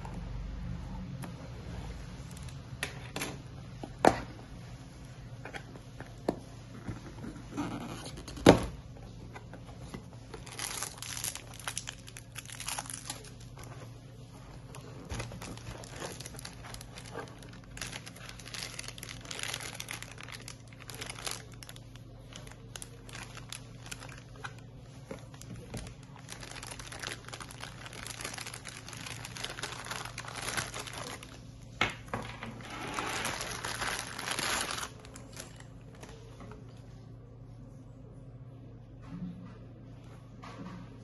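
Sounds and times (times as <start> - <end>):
plastic bag crinkling: 9.8 - 36.4.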